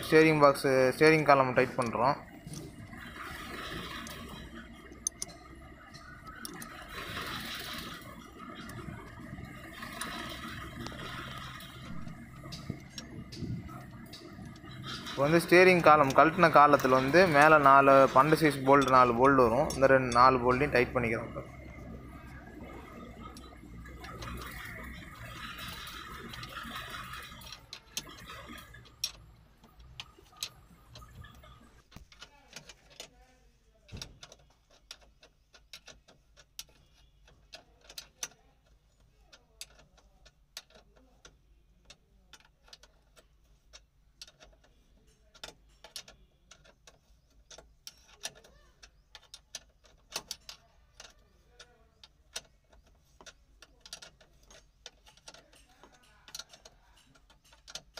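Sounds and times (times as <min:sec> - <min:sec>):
hand tools clicking on bolts: 0:00.0 - 0:21.2, 0:33.9 - 0:57.9.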